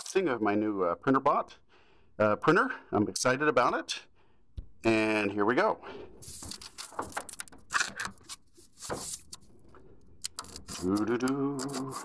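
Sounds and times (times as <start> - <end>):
knife cutting packing tape: 10.2 - 12.0.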